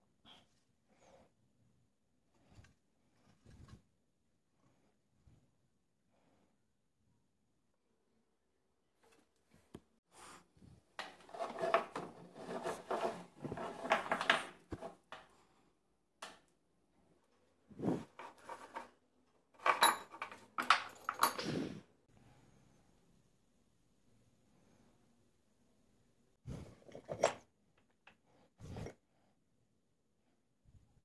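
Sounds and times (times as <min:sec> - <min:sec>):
metal tools clattering on workbench: 0:19.6 - 0:21.6.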